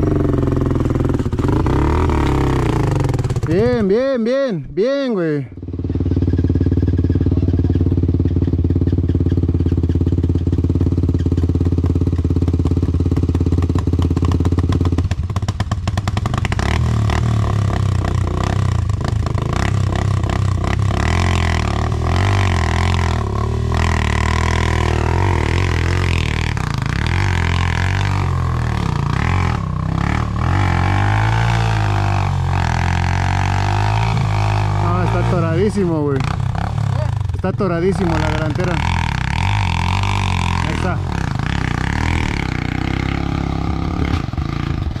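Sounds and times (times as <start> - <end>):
dirt bike engines revving: 0.0 - 15.0, 15.9 - 45.0.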